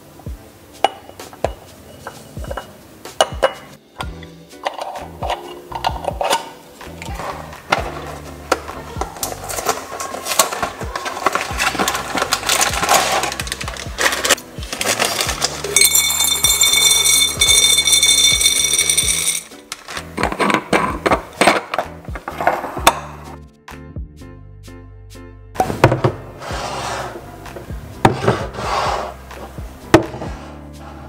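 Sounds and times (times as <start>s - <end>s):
background music: 0.0s - 31.0s
glass jars clinking: 0.8s - 3.8s, 4.6s - 6.6s, 14.0s - 23.0s.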